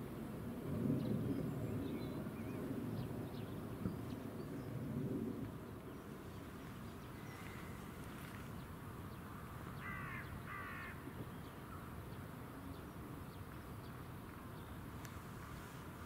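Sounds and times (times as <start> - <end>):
faint background hiss: 0.0 - 16.0
crow cawing: 9.8 - 11.0.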